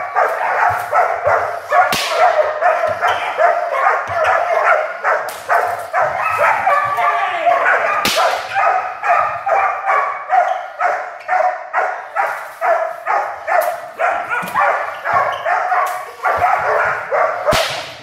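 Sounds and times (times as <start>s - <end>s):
puppy barking: 0.0s - 17.7s
sharp crack: 1.9s - 2.4s, 8.0s - 8.5s, 17.5s - 18.0s.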